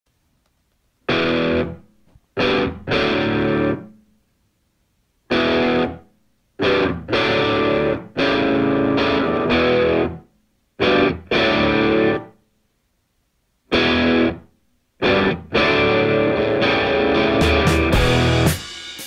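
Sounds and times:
distorted electric guitar chords: 1.1s - 4.0s, 5.3s - 6.0s, 6.6s - 10.2s, 10.8s - 12.3s, 13.7s - 14.4s, 15.0s - 19.0s.

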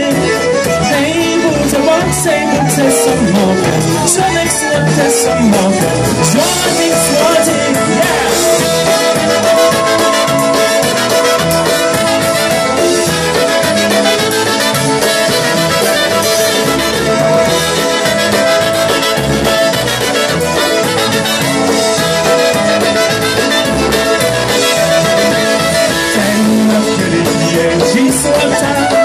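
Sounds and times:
accordion: 0.0s - 29.0s
fiddle: 0.0s - 29.0s
steady beat: 0.2s - 29.0s
trumpets: 6.3s - 27.7s.

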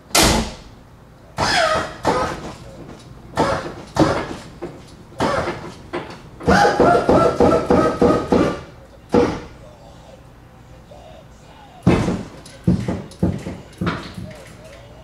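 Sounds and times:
hydraulic pump motors whirring: 1.4s - 9.5s.

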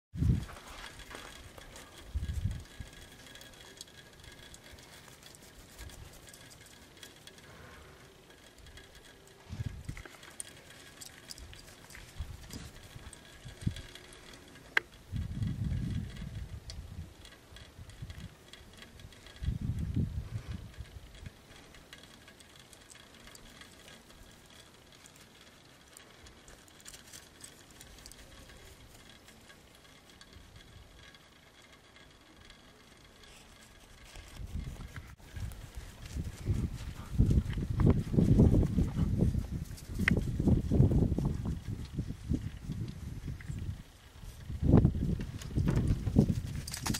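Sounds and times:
wind or microphone handling rumble: 0.1s - 3.1s, 9.5s - 10.0s, 15.0s - 18.4s, 19.0s - 21.4s, 34.0s - 46.9s.

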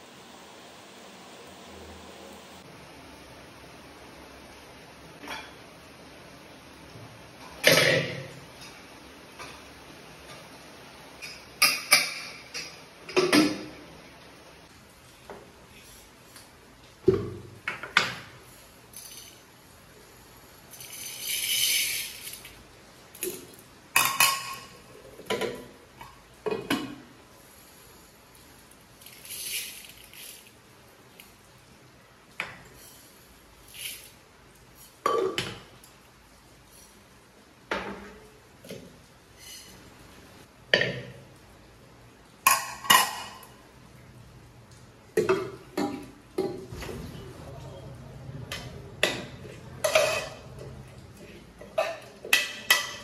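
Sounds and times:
metal pots and lids clanking: 11.2s - 13.8s, 24.0s - 25.8s, 42.4s - 43.5s, 48.5s - 53.0s
lentils pattering into pot: 28.8s - 31.4s, 33.6s - 35.1s
spoon clinking on metal vessels: 48.6s - 50.8s, 51.6s - 53.0s.

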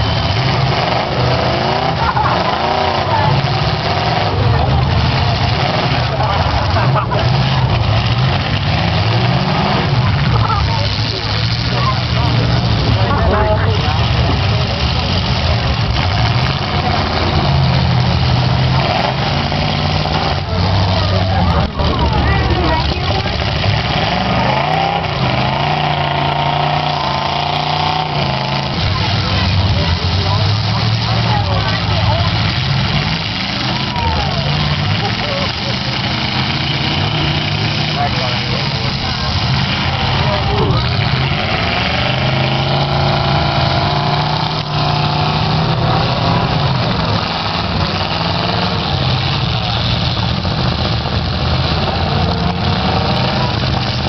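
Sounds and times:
car engine revving: 0.0s - 54.0s.

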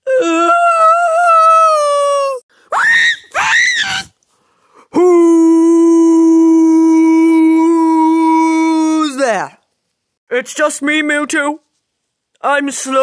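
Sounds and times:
person screaming: 0.1s - 4.2s, 5.0s - 9.1s.

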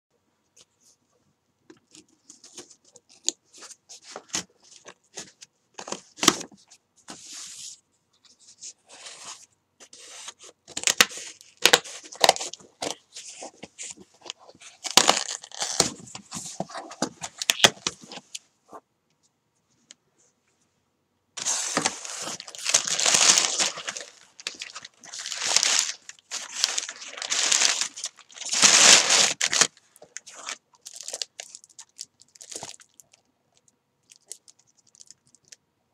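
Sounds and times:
cardboard scraping: 21.4s - 29.7s
box rustling open: 21.4s - 31.7s.

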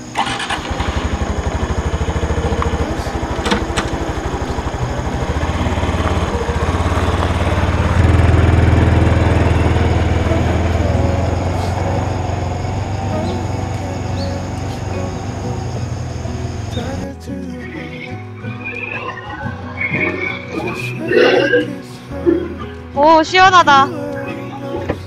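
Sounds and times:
motorcycle engine running: 0.0s - 17.2s.

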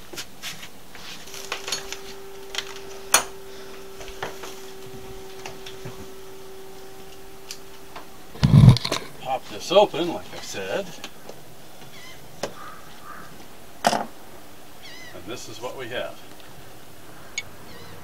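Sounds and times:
faint steady hum: 0.0s - 18.0s
metal tools clinking: 1.3s - 3.3s.

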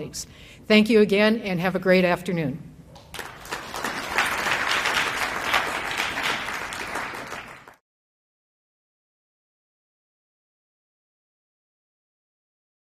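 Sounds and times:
audience applauding: 3.1s - 7.8s.

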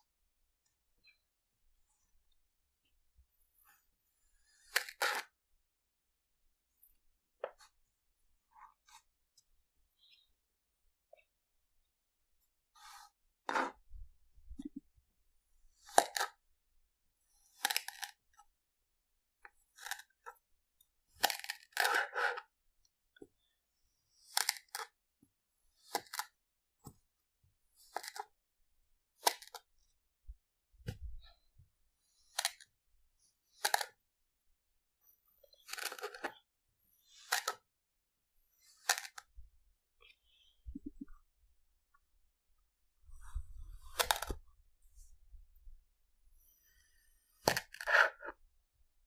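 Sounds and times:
knife cutting kinetic sand: 3.6s - 5.4s, 12.7s - 13.8s, 15.6s - 16.4s, 17.2s - 18.5s, 19.4s - 20.4s, 21.1s - 22.5s, 24.0s - 25.0s, 25.7s - 27.0s, 27.7s - 28.4s, 29.1s - 29.8s, 32.1s - 32.7s, 33.4s - 34.0s, 35.0s - 37.8s, 38.4s - 39.4s, 43.2s - 44.5s, 46.4s - 48.4s.

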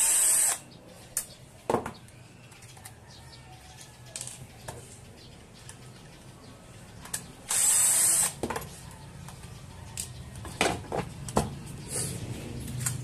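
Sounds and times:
cordless drill spinning: 0.0s - 0.6s, 7.5s - 8.4s.

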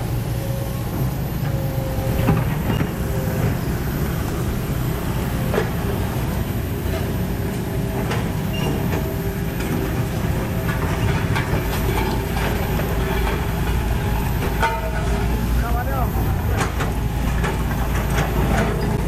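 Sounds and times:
diesel machinery rumbling: 0.0s - 19.0s
metal clanks: 10.5s - 19.0s.

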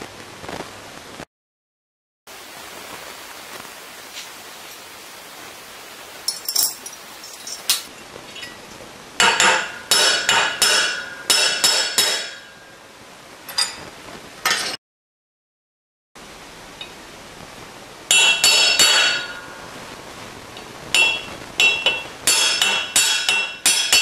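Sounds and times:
metal gear clinking on steel: 6.3s - 7.9s.

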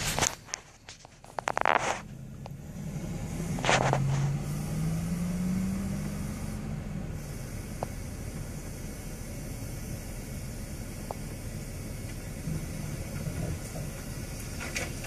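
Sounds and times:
rustling noise: 0.0s - 2.2s, 3.4s - 4.5s
vehicle engine revving: 1.2s - 15.0s.

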